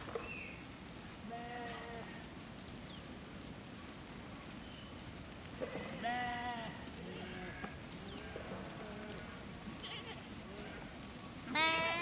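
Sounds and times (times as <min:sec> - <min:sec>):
low steady background noise: 0:00.0 - 0:12.0
sheep bleating: 0:11.5 - 0:12.0.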